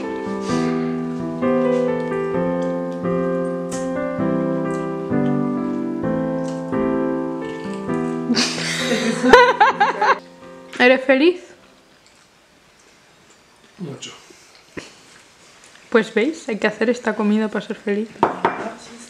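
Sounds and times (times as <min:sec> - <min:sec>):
slow piano music: 0:00.0 - 0:12.2.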